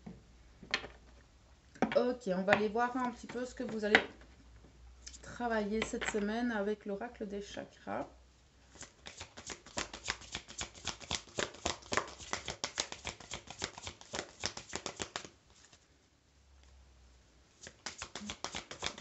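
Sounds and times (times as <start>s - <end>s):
cards being shuffled: 8.7s - 15.8s, 17.6s - 19.0s.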